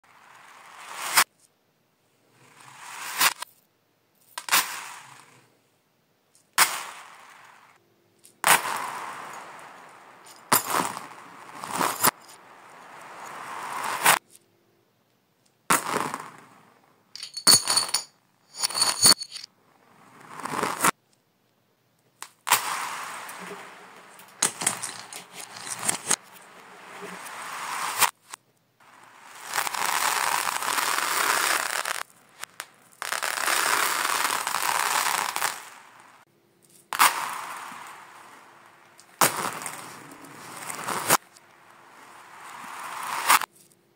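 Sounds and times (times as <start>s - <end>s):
plastic beads rattling on floor: 17.2s - 19.5s, 22.6s - 26.2s, 29.4s - 32.0s.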